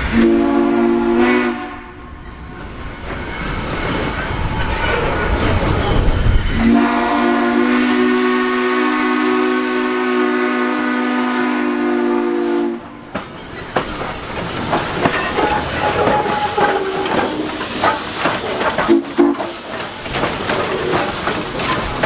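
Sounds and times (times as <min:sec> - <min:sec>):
steam whistle blast: 0:00.0 - 0:02.0, 0:06.5 - 0:12.9
steam hissing: 0:00.0 - 0:22.0
clanking running gear: 0:13.2 - 0:22.0.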